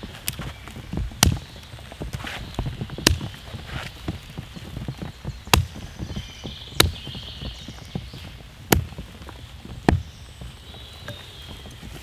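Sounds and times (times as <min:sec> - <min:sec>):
hatchet chopping dry wood: 0:01.2 - 0:01.6, 0:03.0 - 0:03.4, 0:05.5 - 0:05.8, 0:06.8 - 0:07.2, 0:08.6 - 0:09.1, 0:09.8 - 0:10.2.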